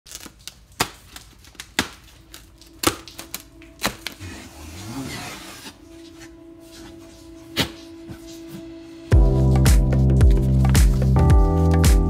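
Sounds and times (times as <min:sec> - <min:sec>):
packing straps snapping: 0:00.1 - 0:05.8
scraping against cardboard: 0:04.2 - 0:08.3.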